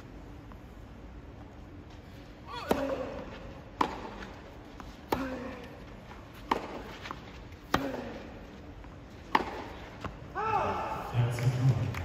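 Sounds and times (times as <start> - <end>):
tennis racket hitting ball: 2.5 - 5.7, 6.3 - 8.3, 9.2 - 10.2.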